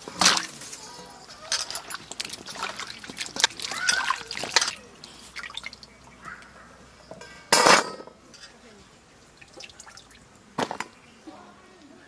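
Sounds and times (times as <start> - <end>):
vegetables handled in water: 0.0 - 6.2
metal bowls and plates clinking: 0.1 - 4.8, 7.1 - 8.6.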